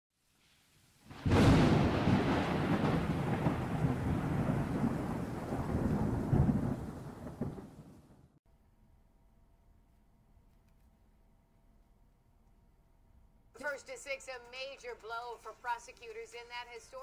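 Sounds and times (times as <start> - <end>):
thunder crack: 1.1 - 8.4
thunder rolling rumble: 1.1 - 8.4.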